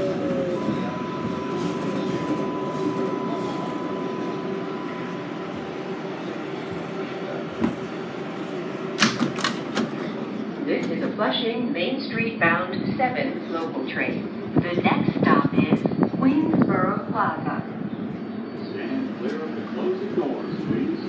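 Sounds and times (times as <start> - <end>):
train running rumble: 0.0 - 21.0
sharp clacks of doors: 9.0 - 10.0.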